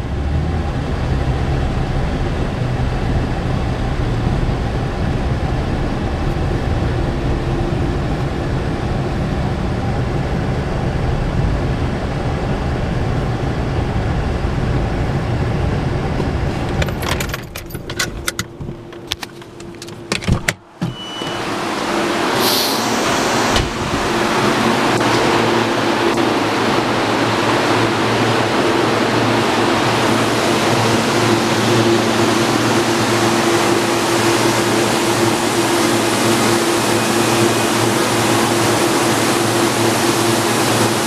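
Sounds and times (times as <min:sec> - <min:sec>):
car engine running: 0:00.0 - 0:10.3
car door shutting: 0:16.7 - 0:21.5, 0:22.4 - 0:24.2
keys jangling: 0:16.8 - 0:20.2
steady hiss: 0:21.3 - 0:26.0.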